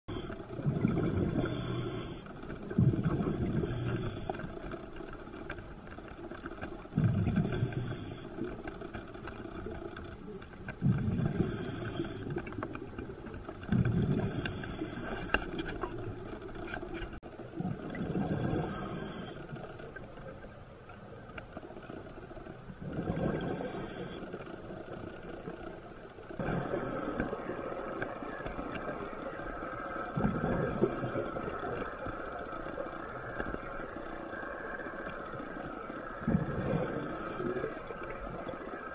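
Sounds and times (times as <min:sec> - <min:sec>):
exhaled bubbles rumbling: 0:00.1 - 0:04.3, 0:06.7 - 0:15.0, 0:15.7 - 0:20.8, 0:21.8 - 0:24.1, 0:26.3 - 0:38.9
regulator hissing inhale: 0:01.4 - 0:02.4, 0:03.5 - 0:04.5, 0:07.4 - 0:08.4, 0:11.4 - 0:12.3, 0:14.2 - 0:15.4, 0:18.5 - 0:19.4, 0:23.4 - 0:24.3, 0:26.4 - 0:27.4, 0:30.7 - 0:31.6, 0:36.6 - 0:37.7.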